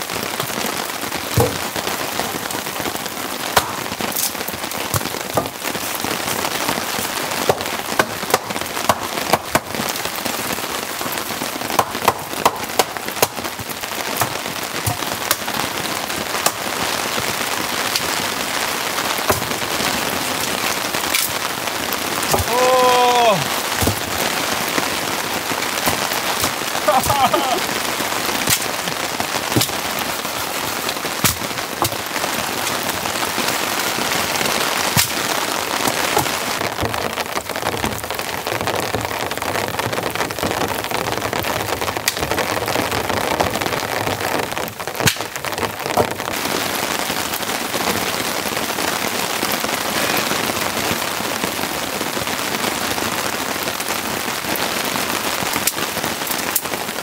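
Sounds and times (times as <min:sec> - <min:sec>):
heavy rain falling: 0:00.0 - 0:57.0.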